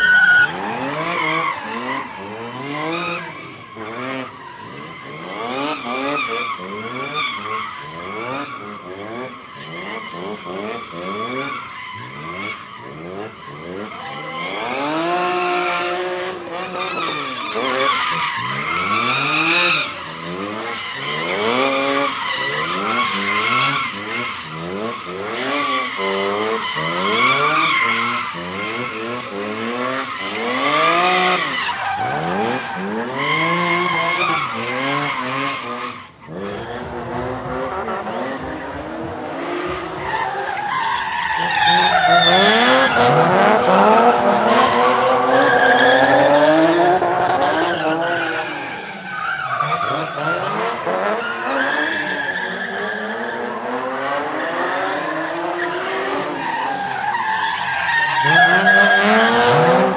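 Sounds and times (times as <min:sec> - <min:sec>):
tyres squealing and skidding: 0:00.0 - 0:59.9
car engine revving: 0:41.3 - 0:48.8, 0:57.9 - 0:59.9.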